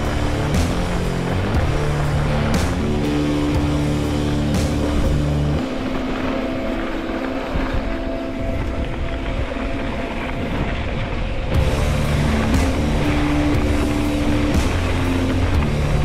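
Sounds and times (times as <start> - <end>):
stepped bass line: 0.0 - 5.6, 11.6 - 16.0
noisy wash: 0.0 - 16.0
sustained high notes: 3.1 - 16.0.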